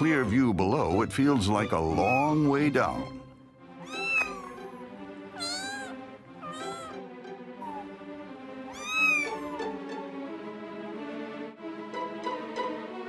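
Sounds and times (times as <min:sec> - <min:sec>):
soft string music: 0:00.0 - 0:13.0
kitten mewing: 0:03.8 - 0:07.0, 0:07.6 - 0:08.0, 0:08.7 - 0:09.7.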